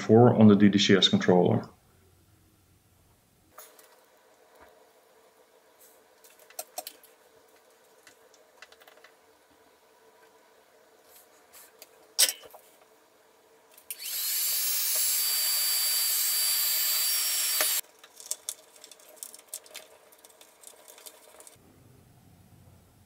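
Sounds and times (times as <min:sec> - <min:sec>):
heat gun fan whining: 0:13.8 - 0:17.8.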